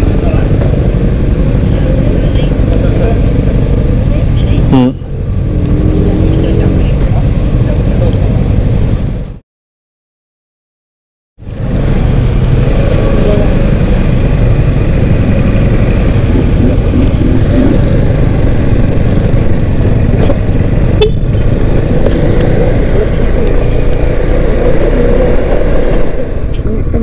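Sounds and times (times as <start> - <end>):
motorcycle engine running: 0.0 - 9.4, 11.4 - 27.0
wind rushing over microphone: 11.4 - 27.0.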